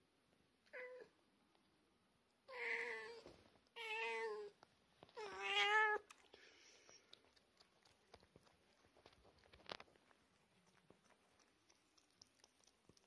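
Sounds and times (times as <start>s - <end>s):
cat meowing: 5.2s - 6.1s.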